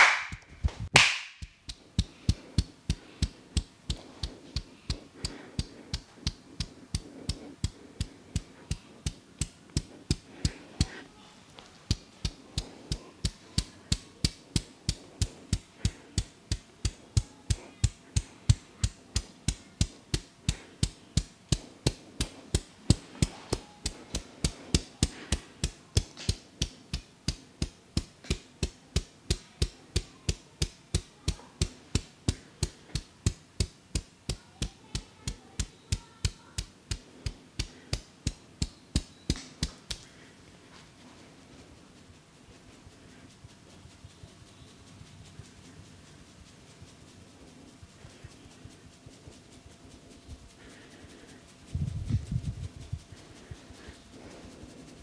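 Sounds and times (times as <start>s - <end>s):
hands slapping scalp: 0.0s - 41.1s.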